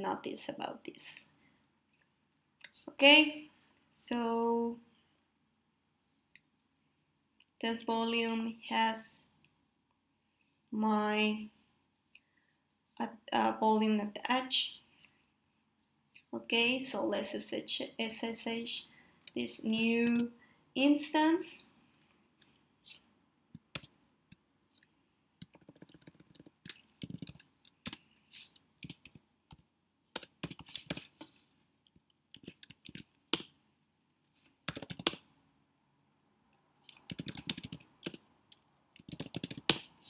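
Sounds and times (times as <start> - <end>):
typing on a keyboard: 23.7 - 23.9, 25.4 - 28.0, 28.8 - 29.6, 30.2 - 31.1, 32.4 - 33.5, 34.6 - 35.2, 36.9 - 38.2, 39.0 - 39.9.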